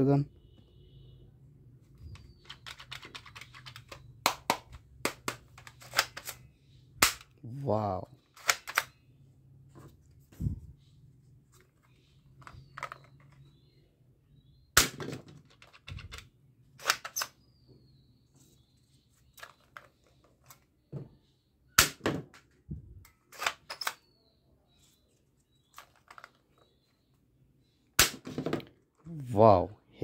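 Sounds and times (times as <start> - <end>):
toy pistol plastic clicks: 8.4 - 8.9.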